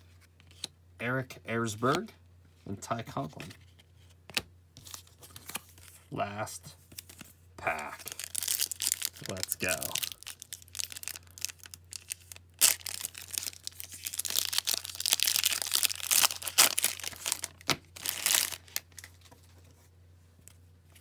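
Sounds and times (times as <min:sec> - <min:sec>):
foil wrapper crinkling: 0:08.0 - 0:19.2
wrapper tearing: 0:08.0 - 0:19.2.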